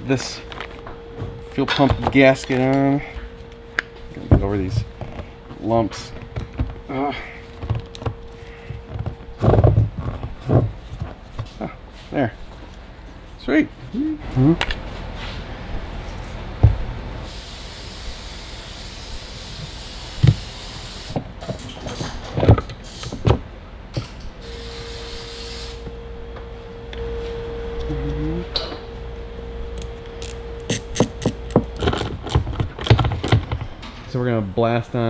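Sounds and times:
faint steady hum: 0.0 - 35.0
hiss: 17.3 - 21.2, 24.5 - 25.8.

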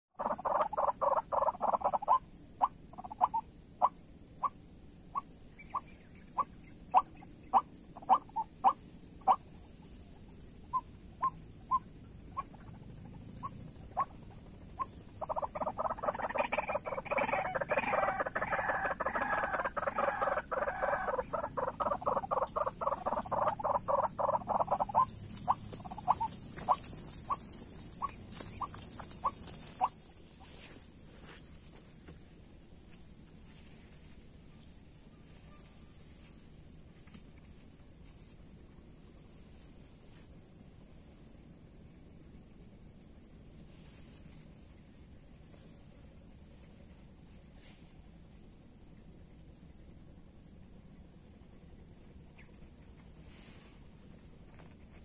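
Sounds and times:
steady high whine: 3.5 - 43.1
waterhens calling: 14.8 - 30.1.

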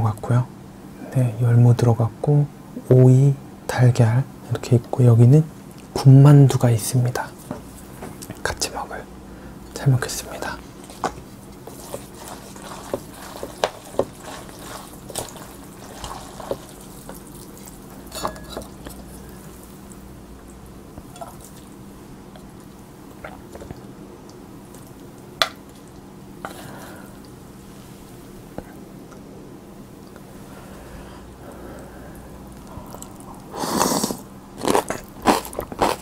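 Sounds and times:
wet stirring of noodles: 10.3 - 27.6.

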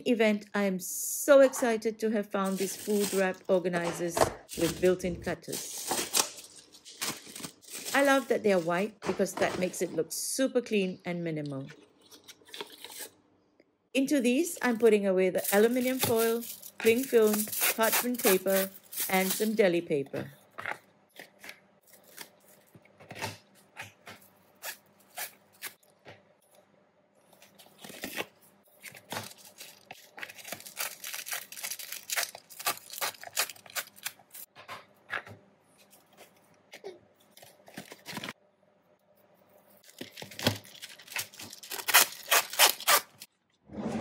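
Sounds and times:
film and paper rustling and tearing: 2.4 - 9.9, 11.9 - 13.1, 15.4 - 19.8, 21.2 - 25.8, 27.3 - 34.5, 35.8 - 38.4, 39.7 - 43.3.

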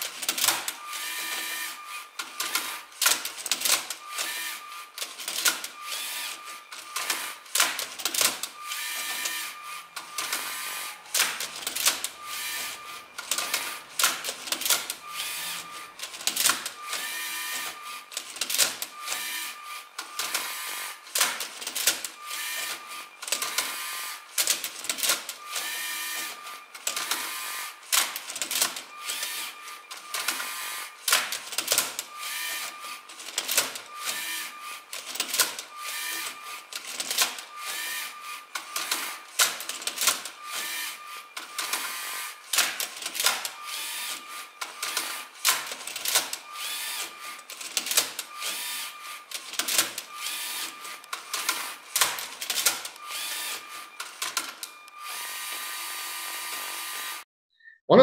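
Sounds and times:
robot motors whirring: 46.5 - 57.2.

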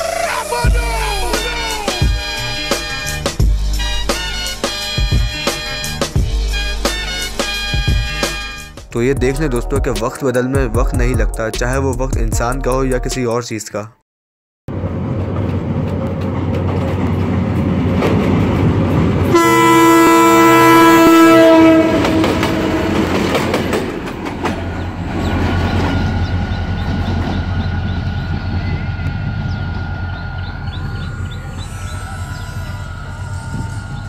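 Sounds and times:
locomotive engine rumble: 0.0 - 10.0, 14.7 - 34.0
locomotive horn blast: 0.9 - 8.8, 19.2 - 24.0
wheels on rails: 21.9 - 34.0.

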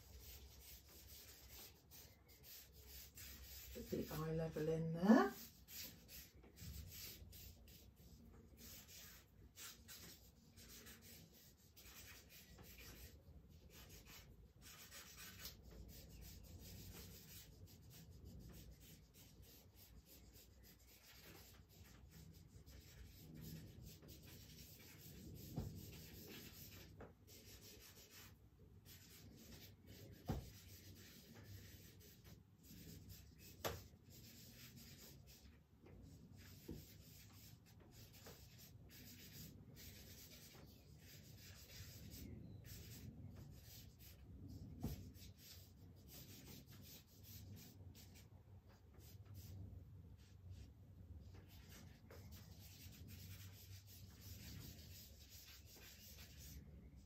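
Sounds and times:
charcoal scratching on paper: 0.0 - 48.3, 51.3 - 56.6.

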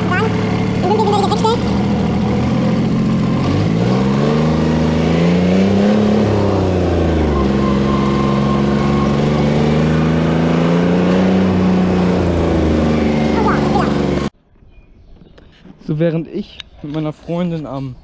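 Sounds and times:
diesel tractor engine: 0.0 - 14.4.

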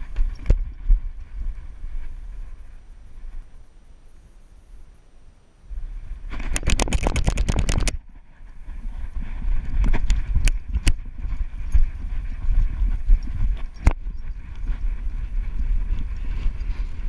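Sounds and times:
rapid clicks and rattles: 6.3 - 8.0
sharp clicks: 6.4 - 8.0.

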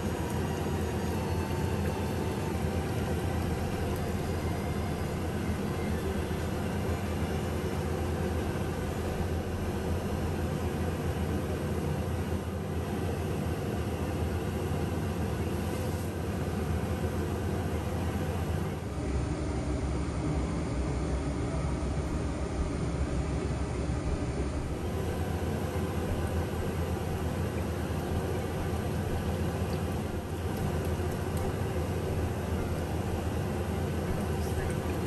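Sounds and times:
range hood fan running: 0.0 - 13.2, 17.9 - 35.0.

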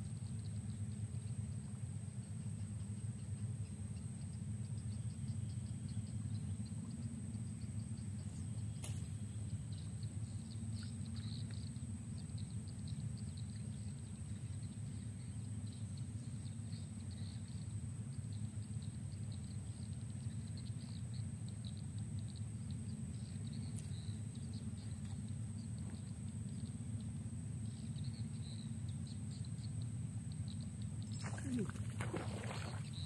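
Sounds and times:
low outdoor rumble: 2.6 - 33.0
faint high chirping: 18.3 - 33.0.

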